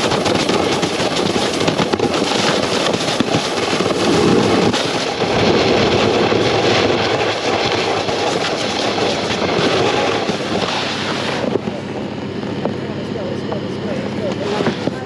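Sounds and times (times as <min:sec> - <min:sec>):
snowboard scraping over snow: 0:00.0 - 0:11.9.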